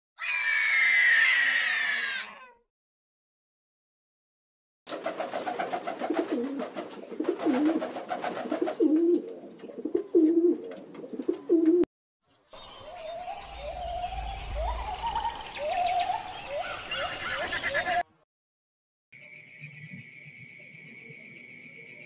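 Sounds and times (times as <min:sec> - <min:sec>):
clatter of wingbeats: 0:04.9 - 0:09.2
pigeons cooing: 0:05.4 - 0:11.9.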